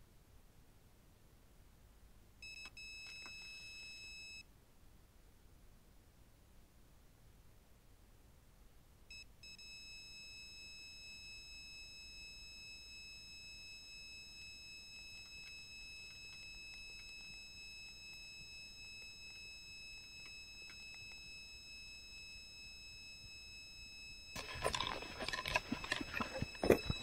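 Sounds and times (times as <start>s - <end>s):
bite alarm high continuous tone: 9.1s - 27.0s.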